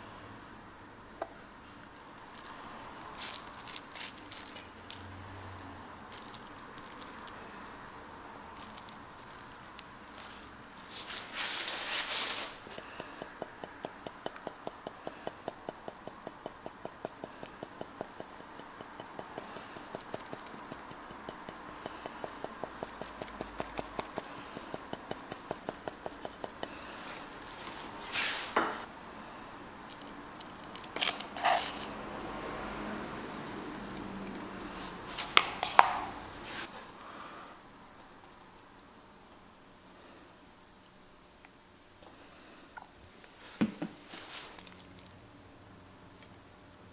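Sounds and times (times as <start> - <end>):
scraping rustle: 2.2 - 5.1, 8.6 - 12.8, 22.1 - 28.9, 30.9 - 32.0, 34.8 - 36.9, 43.4 - 44.9
sieve tapping: 10.9 - 28.8, 35.2 - 36.2.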